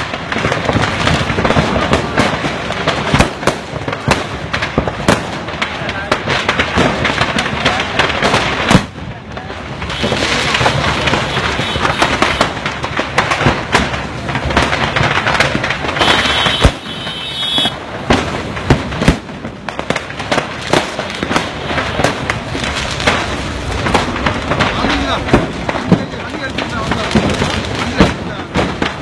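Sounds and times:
firecrackers crackling: 0.0 - 29.0
firework bangs: 0.0 - 29.0
high firework whistle: 16.0 - 17.8.

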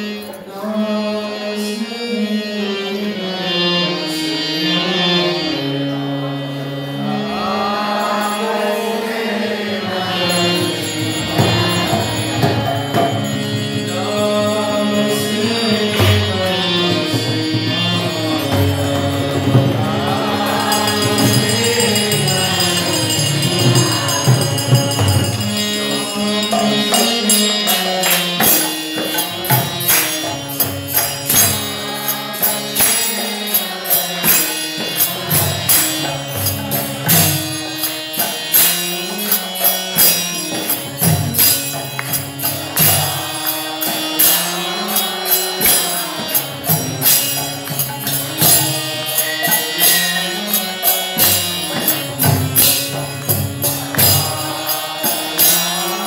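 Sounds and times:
person singing a chant: 0.0 - 30.2, 31.4 - 40.7, 42.6 - 56.0
harmonium melody: 0.0 - 56.0
hand drum: 11.1 - 13.8, 15.9 - 27.2
small hand cymbals ringing: 20.3 - 34.6.

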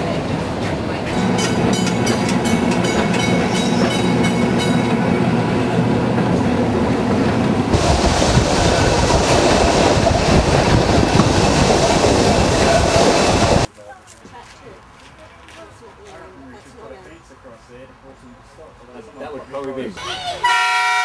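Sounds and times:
electric tram humming: 0.0 - 13.7
rushing rumble: 0.0 - 13.7
wheels clicking over rails: 0.6 - 5.1.

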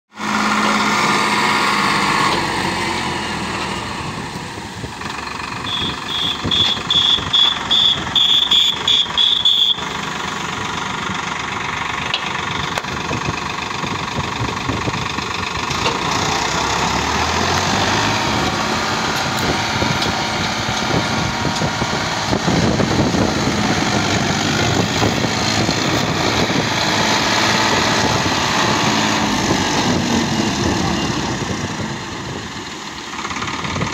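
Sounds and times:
tractor diesel engine running: 0.1 - 33.9
short high beeps: 5.6 - 9.8.

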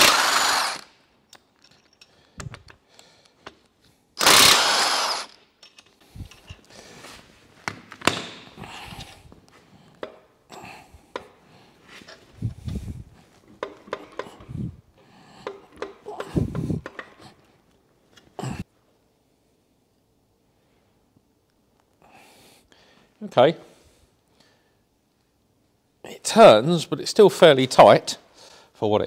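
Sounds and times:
power tool burst: 0.0 - 0.9, 4.2 - 5.4
metallic clinks and knocks: 1.3 - 2.8.

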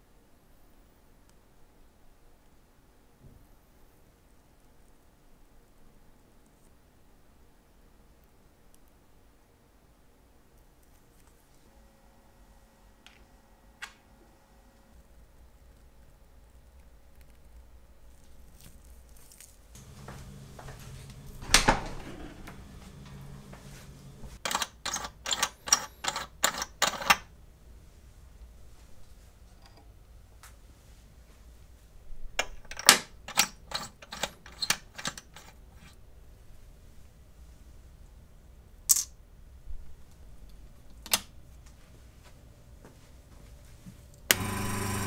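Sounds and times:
faint low hum: 0.0 - 24.5.

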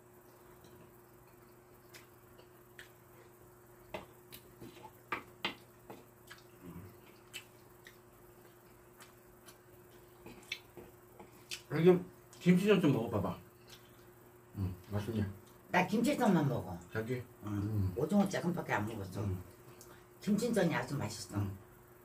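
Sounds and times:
faint steady hum: 0.0 - 22.0
wet mouth sounds: 4.3 - 11.7.

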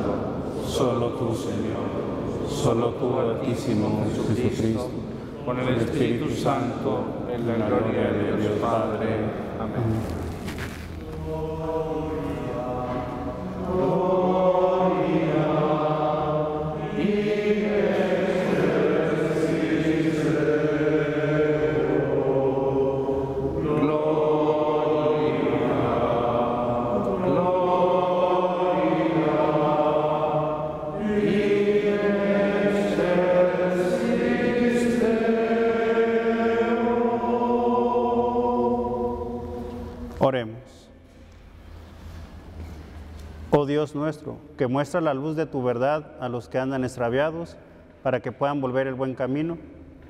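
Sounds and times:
group singing slow chant: 0.0 - 9.3, 11.0 - 40.2.

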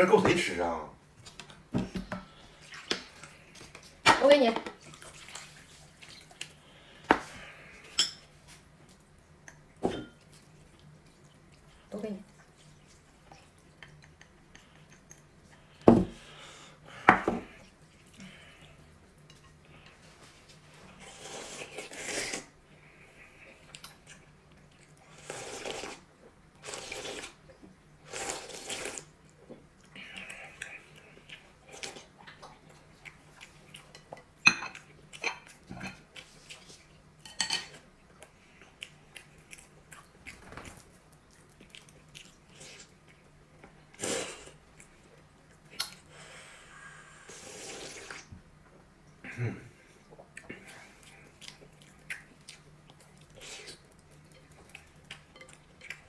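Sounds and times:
chewing: 8.9 - 15.8, 26.6 - 43.8, 50.0 - 56.0
slurping noodles: 21.0 - 22.5, 25.1 - 27.4, 28.1 - 29.1, 47.1 - 48.3.

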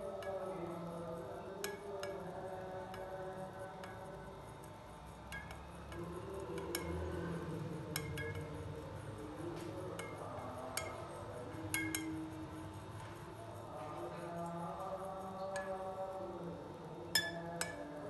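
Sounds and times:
spoon clinking against glass: 5.3 - 7.1, 7.8 - 8.8, 9.6 - 12.4, 17.1 - 18.0.

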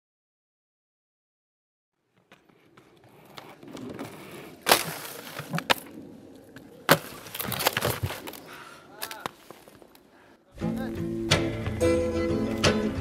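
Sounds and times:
skates scraping along rail: 2.0 - 10.1.

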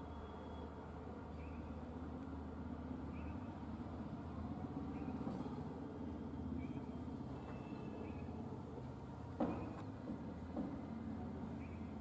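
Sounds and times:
vehicle engines rumbling: 0.0 - 12.0
faint bird chirps: 3.1 - 3.6.

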